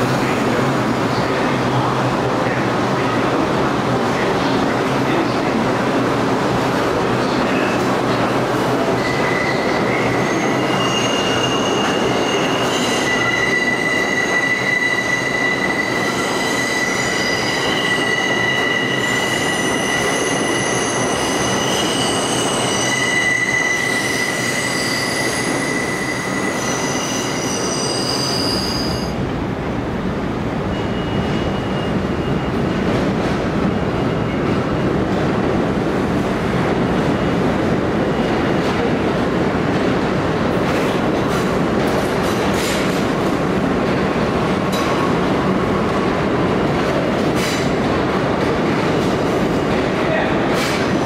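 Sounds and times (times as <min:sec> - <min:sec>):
train wheels squealing: 0:09.0 - 0:29.2, 0:30.7 - 0:32.8.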